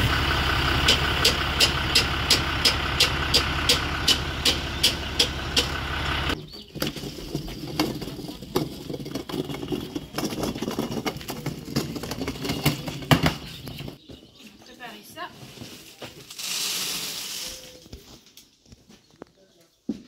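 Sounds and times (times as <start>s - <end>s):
regular ticking: 0.0s - 6.4s
tractor engine idling: 0.0s - 6.4s
plastic cart knocking and rattling: 6.7s - 14.1s.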